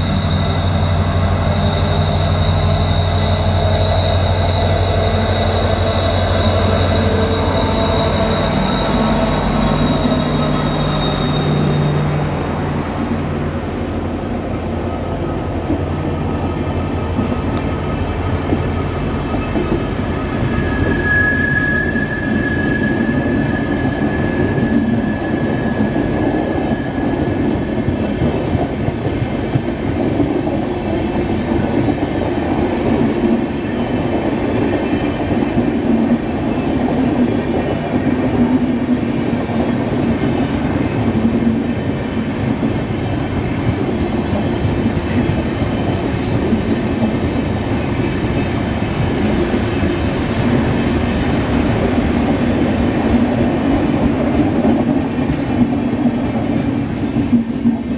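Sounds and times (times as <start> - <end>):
train wheels rumbling on rails: 0.0 - 57.9
clickety-clack over rail joints: 16.8 - 19.9, 26.6 - 57.9.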